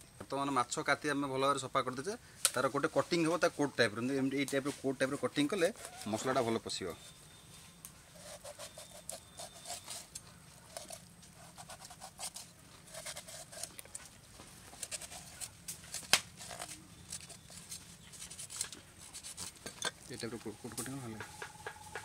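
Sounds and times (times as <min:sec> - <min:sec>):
knife tapping wooden board: 0:21.1 - 0:22.0.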